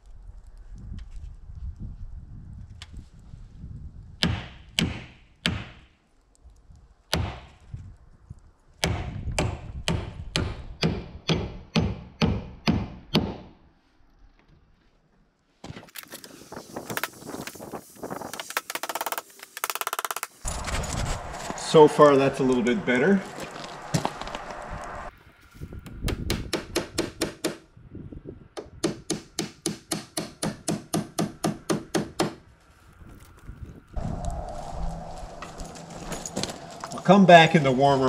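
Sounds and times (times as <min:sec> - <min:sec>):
hammer striking nails: 0:04.2 - 0:05.9, 0:07.1 - 0:07.5, 0:08.8 - 0:13.5, 0:26.1 - 0:27.6, 0:28.6 - 0:32.4.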